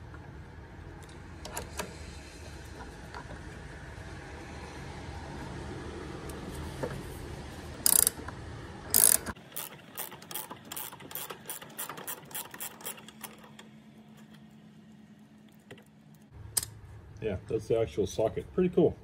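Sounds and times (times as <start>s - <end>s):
ratchet clicking: 7.8s - 8.2s, 8.9s - 13.6s
ratchet rasps: 7.8s - 8.2s, 8.9s - 13.6s.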